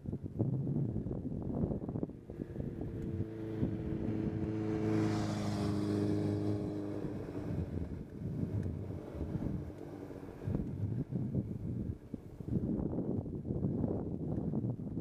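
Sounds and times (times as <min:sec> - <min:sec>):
vehicle engine passing by: 0:02.3 - 0:12.6.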